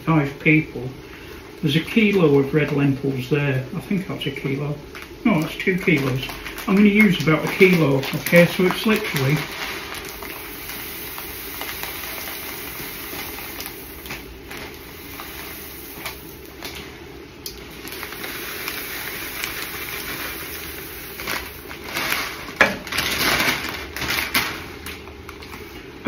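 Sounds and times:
plastic bag crinkling: 0:01.6 - 0:26.0
lentils pouring into metal pot: 0:05.0 - 0:24.5.

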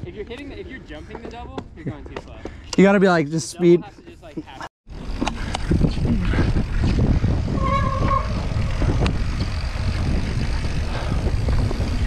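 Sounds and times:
bike tyres rolling on dirt: 0:04.9 - 0:12.0
wind rushing over microphone: 0:05.1 - 0:12.0.

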